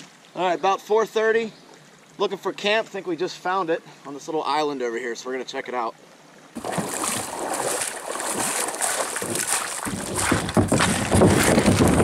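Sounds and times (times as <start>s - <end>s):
footsteps splashing in shallow water: 6.6s - 12.0s
kayak scraping over stones: 6.6s - 12.0s.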